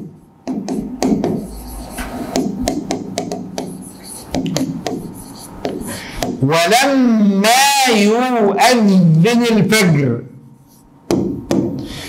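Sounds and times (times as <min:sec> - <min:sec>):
stylus tapping and scraping on glass: 0:00.5 - 0:06.4.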